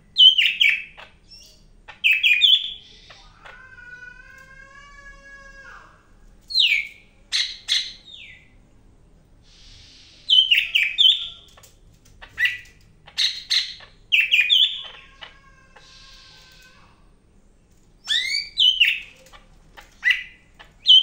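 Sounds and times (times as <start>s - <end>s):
bird chirping and chattering: 0.2s - 3.6s, 6.5s - 8.5s, 9.5s - 16.7s, 18.0s - 21.0s.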